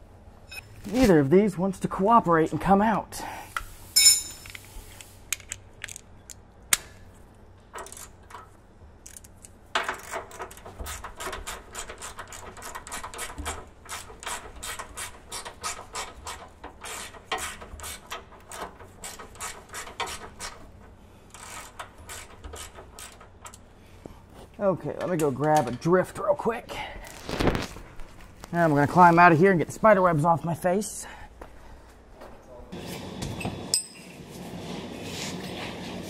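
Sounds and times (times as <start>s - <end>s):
hand ratchet clicking: 9.0s - 20.6s, 21.3s - 23.6s.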